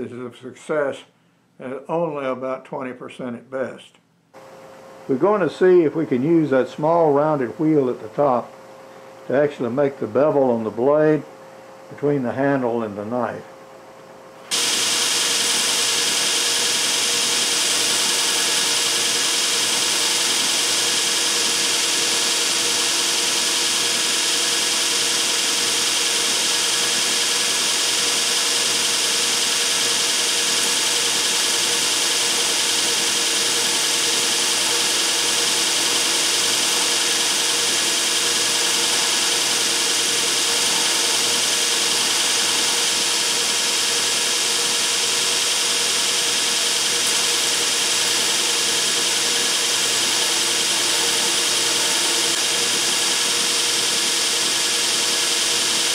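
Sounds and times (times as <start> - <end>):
motor hum: 14.4 - 55.9
belt grinder grinding steel: 14.5 - 55.9.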